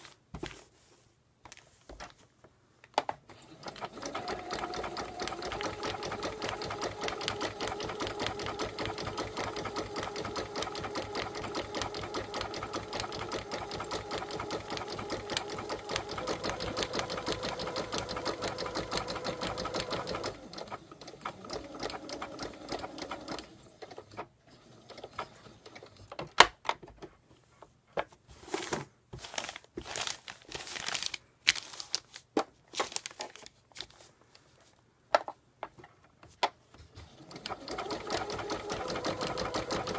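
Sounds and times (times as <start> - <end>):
sewing machine stitching: 3.3 - 26.3, 36.8 - 39.9.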